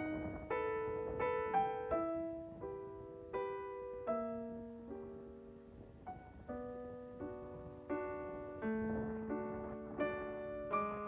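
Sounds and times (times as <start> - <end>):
slow gentle piano music: 0.0 - 11.0.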